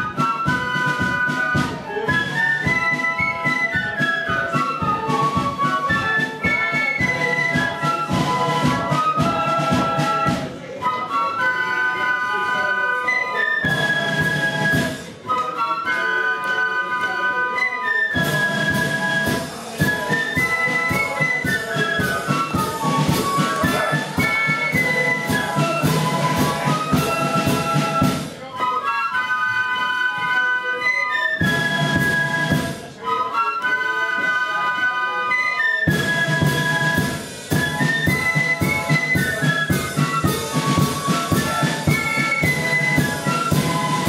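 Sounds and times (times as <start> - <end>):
side drums: 0.0 - 11.2, 13.6 - 15.3, 18.2 - 28.6, 31.4 - 33.0, 35.9 - 44.0
flutes playing march melody: 0.0 - 44.0.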